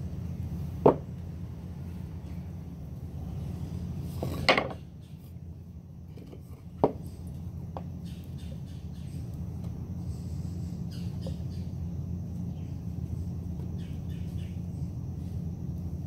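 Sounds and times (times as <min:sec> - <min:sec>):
steady low hum: 0:00.0 - 0:16.0
wooden boards knocking: 0:00.8 - 0:01.0, 0:04.2 - 0:04.8, 0:06.2 - 0:07.0.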